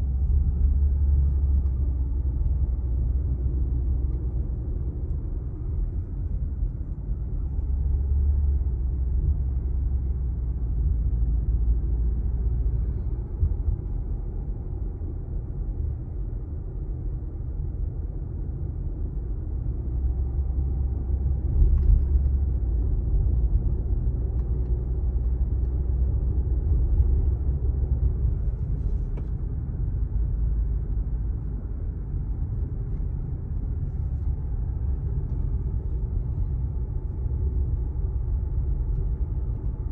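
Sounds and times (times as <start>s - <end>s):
car engine and tyres rumbling: 0.0s - 39.9s.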